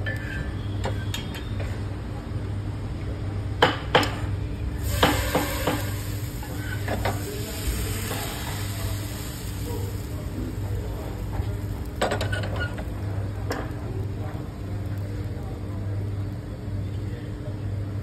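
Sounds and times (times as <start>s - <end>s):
batter sizzling on griddle: 4.1s - 16.7s.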